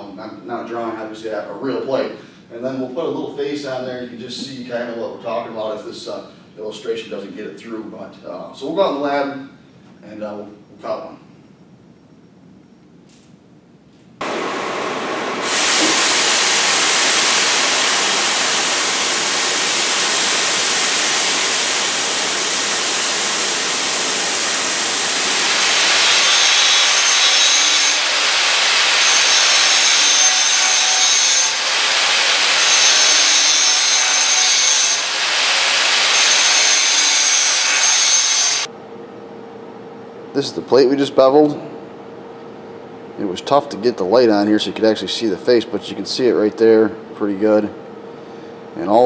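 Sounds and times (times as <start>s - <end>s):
angle grinder whining: 14.2s - 38.7s
cutting torch hissing: 14.2s - 38.7s.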